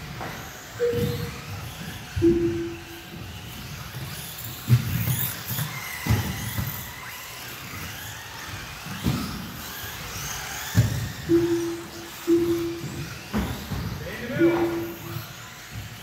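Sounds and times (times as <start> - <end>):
cars knocking on the track: 0.0 - 16.0
rc car motors whining: 0.0 - 16.0
short steady beep: 0.8 - 1.3, 2.2 - 3.0, 11.3 - 13.0, 14.4 - 15.0.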